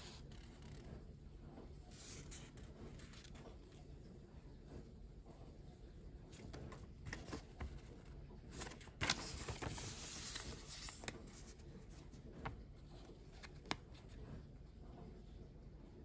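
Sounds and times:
paper rustling and crinkling: 1.9 - 3.8, 6.3 - 14.4.

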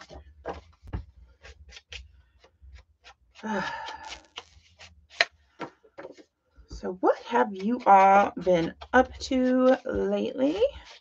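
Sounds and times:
paper rustling: 0.0 - 6.3, 7.2 - 11.0
person sighing: 3.4 - 4.4.

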